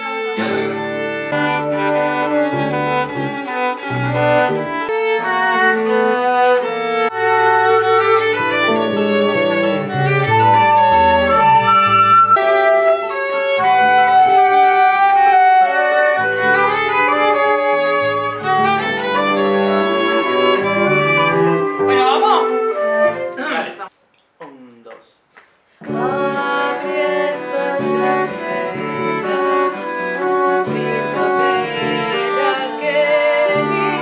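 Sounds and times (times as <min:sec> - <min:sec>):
violin bowing: 0:00.0 - 0:23.7, 0:25.8 - 0:34.0
cello bowing: 0:00.0 - 0:23.8, 0:25.8 - 0:34.0
bass line: 0:07.1 - 0:12.6, 0:16.2 - 0:22.9.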